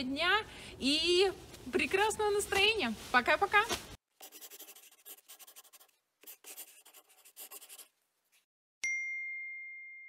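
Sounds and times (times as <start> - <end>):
pencil scratching on paper: 4.2 - 8.5.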